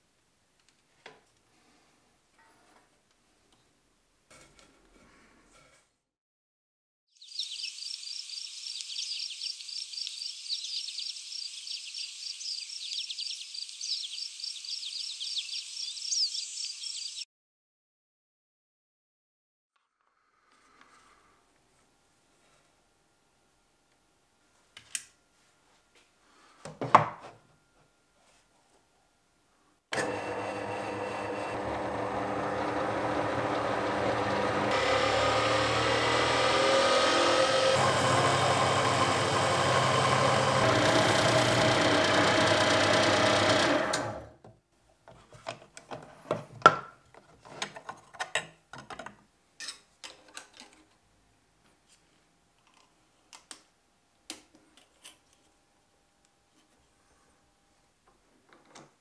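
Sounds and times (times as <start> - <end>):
drill press whining and drilling: 29.9 - 44.3.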